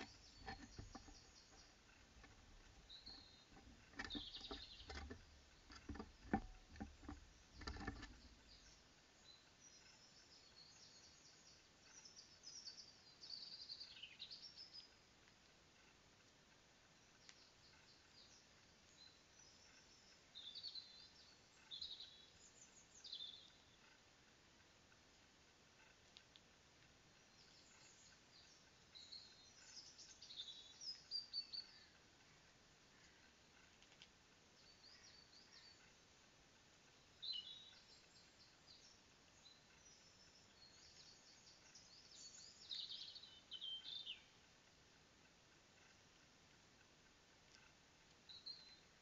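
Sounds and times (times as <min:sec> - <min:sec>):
songbirds chirping: 0:00.0 - 0:49.0
steady background hiss: 0:00.0 - 0:49.0
songbird chirps and whistles: 0:27.3 - 0:31.9, 0:37.1 - 0:44.4.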